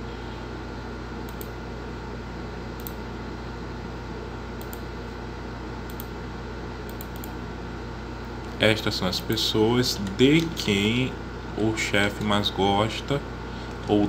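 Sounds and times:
electrical hum and hiss: 0.0s - 14.0s
computer mouse clicks: 1.3s - 1.5s, 2.8s - 3.0s, 4.6s - 4.8s, 5.9s - 6.1s, 6.9s - 7.4s.

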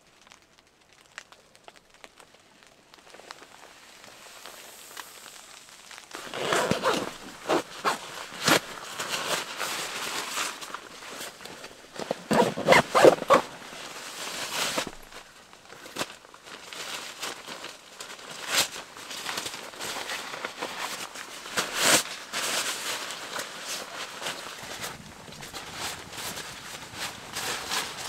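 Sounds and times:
nylon fabric rustling: 6.1s - 28.0s.

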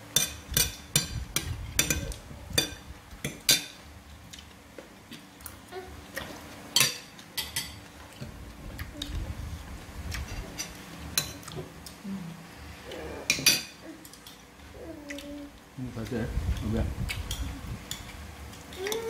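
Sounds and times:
spoons clinking on plates: 6.8s - 7.8s.

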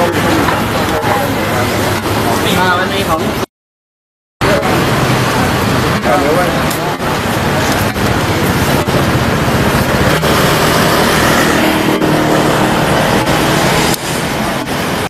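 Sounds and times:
street traffic noise: 0.0s - 3.5s, 4.4s - 15.0s
vehicle engine running close: 4.4s - 15.0s.

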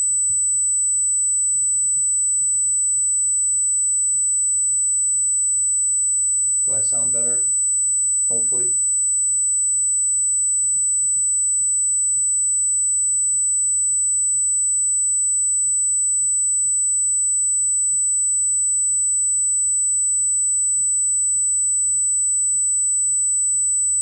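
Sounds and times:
faint low hum: 6.7s - 7.6s
high-pitched electronic whine: 6.7s - 7.6s.

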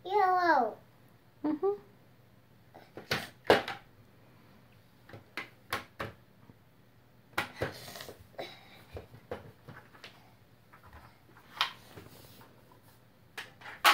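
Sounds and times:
plastic blocks clacking: 13.4s - 13.9s.

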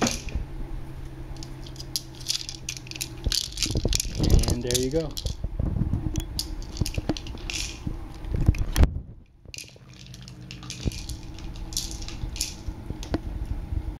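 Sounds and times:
kibble rattling in plastic ball: 1.4s - 5.4s, 6.2s - 8.8s, 9.5s - 13.3s.

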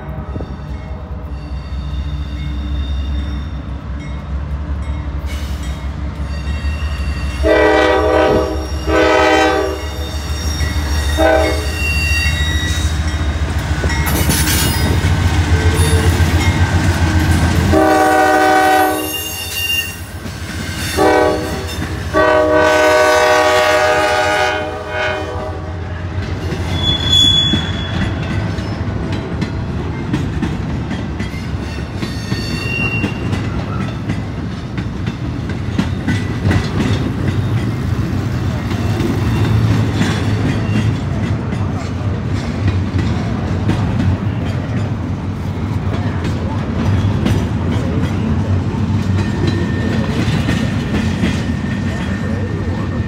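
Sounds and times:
train horn blasts: 7.3s - 10.1s, 11.0s - 12.8s, 17.6s - 20.0s, 20.9s - 26.0s
faint high squeals: 9.8s - 12.9s, 26.7s - 28.1s.

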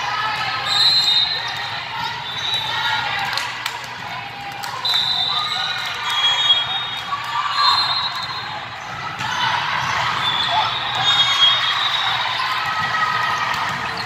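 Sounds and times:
voices echoing in gym: 0.0s - 14.0s
shoes squeaking on court: 6.1s - 14.0s.

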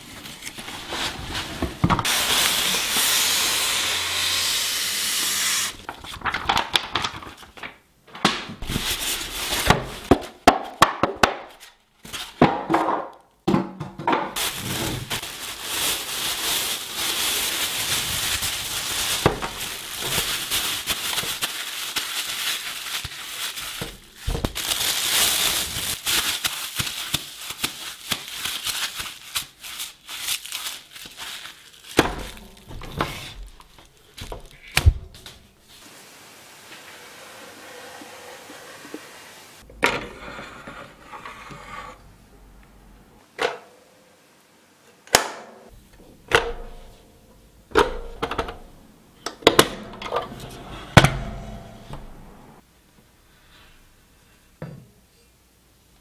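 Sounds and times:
plastic film crinkling: 14.4s - 35.4s.

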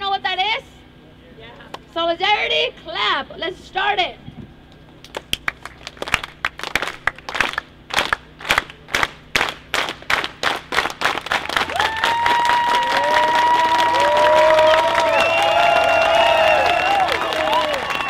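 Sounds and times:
crowd clapping in unison: 5.0s - 18.0s
people cheering and whooping: 11.5s - 18.0s.

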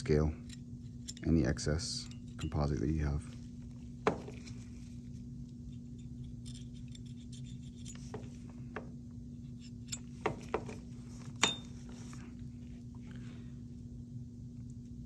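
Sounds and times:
metal tools clicking: 0.4s - 2.8s.

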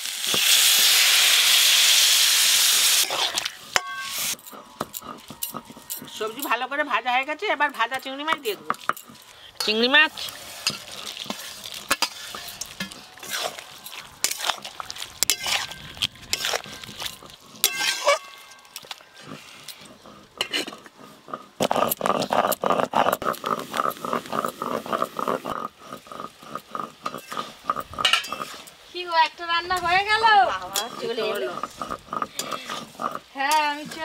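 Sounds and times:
light sizzling: 0.0s - 22.6s, 23.2s - 34.0s
metal spatula scraping pan: 2.9s - 21.0s, 27.0s - 28.8s, 29.7s - 34.0s.

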